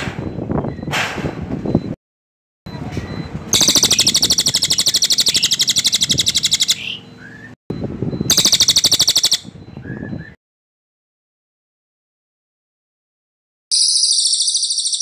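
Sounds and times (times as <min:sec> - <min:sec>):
soft bird calls: 0:03.0 - 0:07.6.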